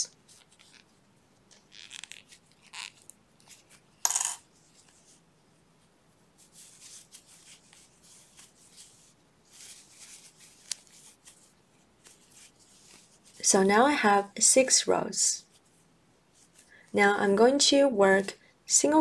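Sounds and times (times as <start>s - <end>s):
yarn rustling while crocheting: 0.0s - 13.8s, 15.4s - 16.6s.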